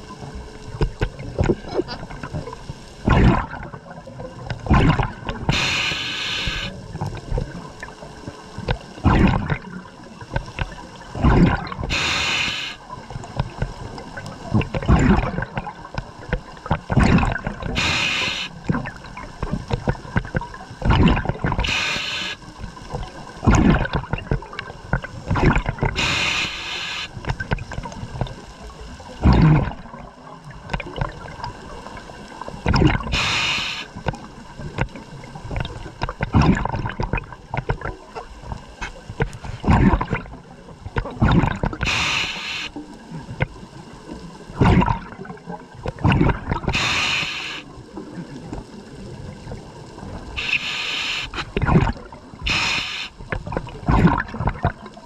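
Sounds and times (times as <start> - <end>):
gurgling exhaled bubbles: 0.0 - 55.0
hissing regulator inhalation: 5.5 - 6.8, 11.9 - 12.8, 17.7 - 18.6, 21.6 - 22.4, 26.0 - 27.2, 33.1 - 34.0, 41.8 - 42.8, 46.7 - 47.7, 50.4 - 51.6, 52.4 - 53.2.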